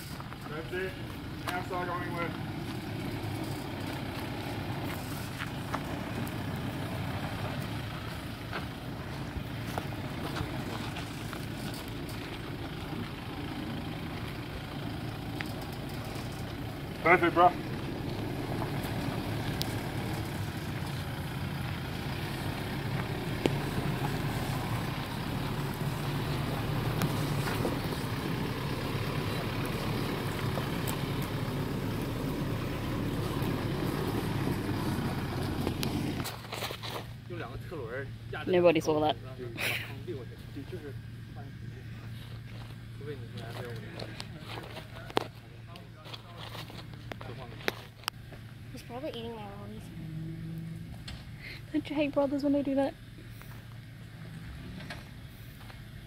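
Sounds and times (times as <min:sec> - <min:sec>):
truck engine running low: 0:00.0 - 0:56.0
stones clicking under tyres: 0:02.3 - 0:16.9, 0:17.7 - 0:37.2, 0:42.2 - 0:48.6.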